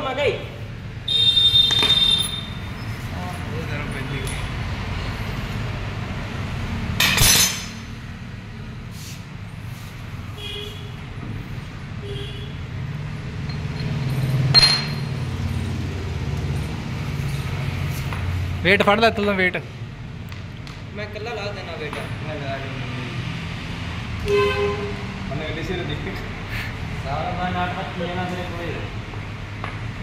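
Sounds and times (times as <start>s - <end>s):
metal clink: 7.0s - 7.9s, 13.5s - 15.2s.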